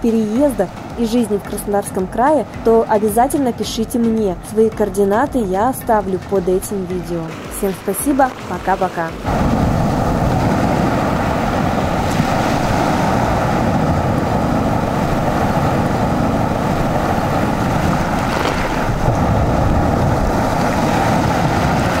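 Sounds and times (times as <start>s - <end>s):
wind rumbling on microphone: 0.0s - 22.0s
sea surf breaking on shore: 7.3s - 22.0s.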